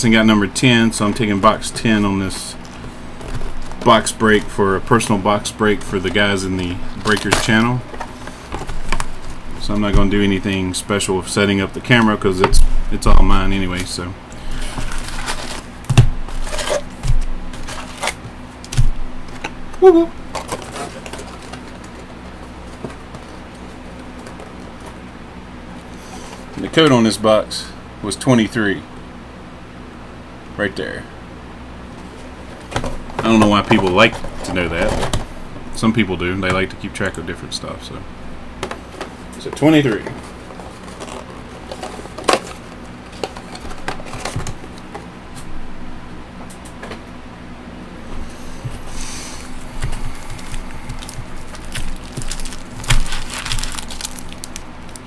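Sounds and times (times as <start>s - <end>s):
low steady hum: 0.0s - 55.0s
foil packs crinkling: 2.2s - 9.9s, 14.4s - 18.9s, 20.3s - 25.0s, 40.2s - 44.4s, 49.3s - 55.0s
crinkles and clicks of a box: 49.8s - 55.0s.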